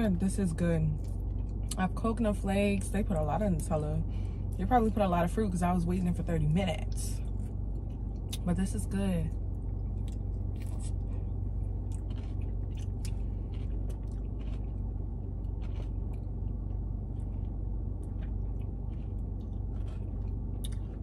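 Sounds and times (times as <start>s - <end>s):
steady low hum: 0.0s - 21.0s
person chewing crunchy food: 1.0s - 1.8s, 7.3s - 8.4s, 9.5s - 21.0s.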